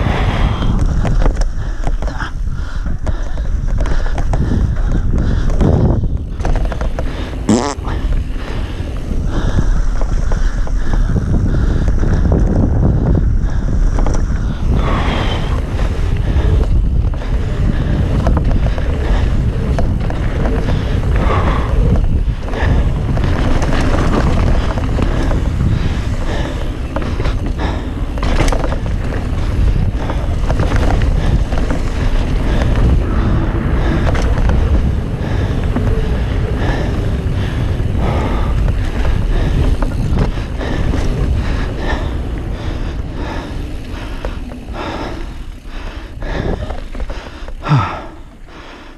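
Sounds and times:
bike knocks and rattles: 0:00.0 - 0:48.1
tyres on dirt: 0:00.0 - 0:48.9
wind rumble on microphone: 0:00.0 - 0:48.9.

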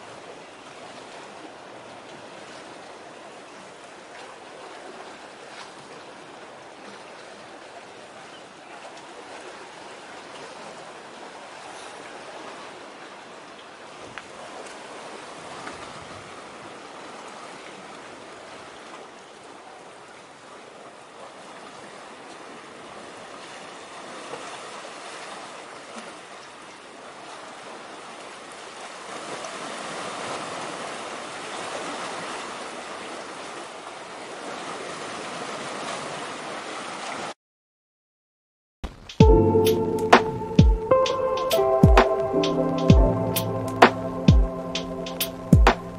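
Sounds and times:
sea water lapping at shore: 0:00.0 - 0:37.4, 0:38.9 - 0:45.9.

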